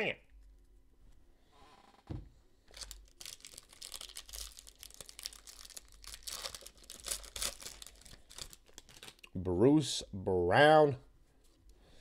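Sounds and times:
foil pack crinkling and tearing: 2.7s - 9.4s.

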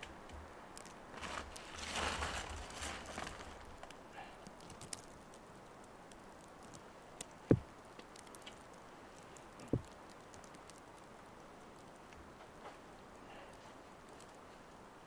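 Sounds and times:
faint ticks and clicks: 0.0s - 1.7s, 3.2s - 14.9s
dull thumps: 7.4s - 7.7s, 9.6s - 10.0s.

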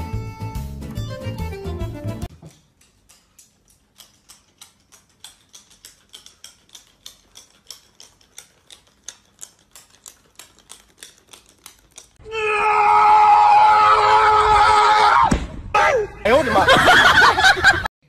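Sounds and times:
wind-up toy clicking on tiles: 2.7s - 12.2s.

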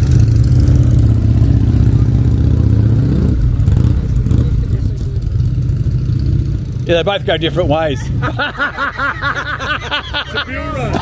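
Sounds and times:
vehicle engine revving: 0.0s - 8.6s.

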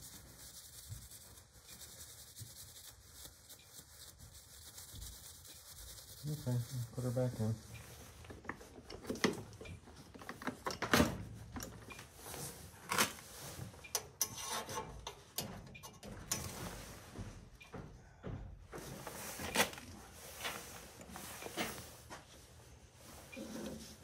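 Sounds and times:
hand tools clicking and knocking: 13.9s - 16.6s.

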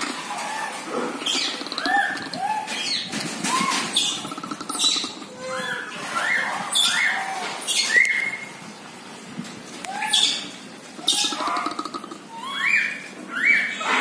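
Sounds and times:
animals chirping and squealing: 0.0s - 8.7s, 9.8s - 14.0s.

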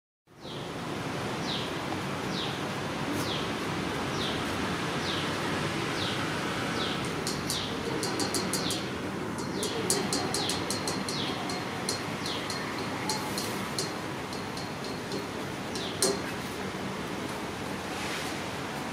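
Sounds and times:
sharp high ticks: 7.0s - 16.6s.

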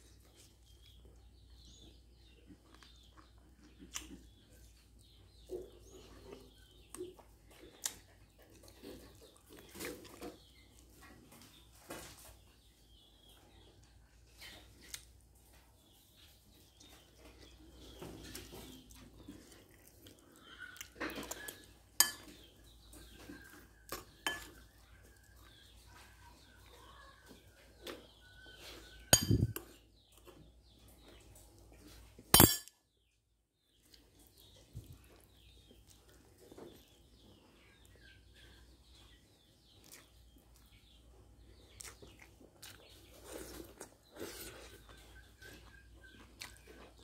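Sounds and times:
utensils clinking on ceramic bowls: 21.4s - 22.4s, 24.2s - 24.6s, 29.2s - 29.7s, 32.4s - 32.7s.

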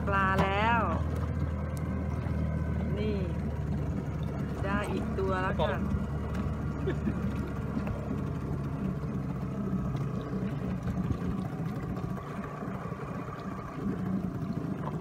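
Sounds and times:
boat engine idling: 0.0s - 15.0s.

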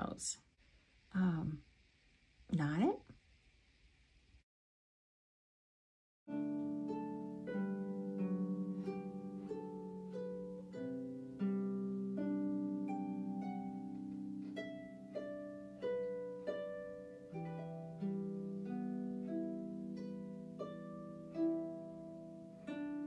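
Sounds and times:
plucked instrumental melody: 6.3s - 23.0s.

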